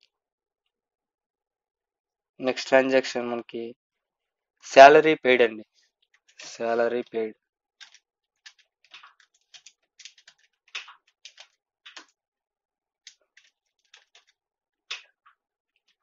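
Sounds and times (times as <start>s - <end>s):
keyboard typing clicks: 7.8s - 12.1s.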